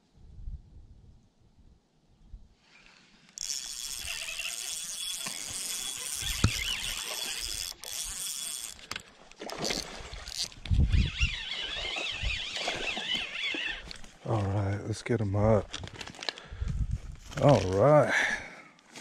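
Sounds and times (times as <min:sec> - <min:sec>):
fishing reel whirring: 0:03.3 - 0:14.1
fish splashing at surface: 0:11.4 - 0:13.9.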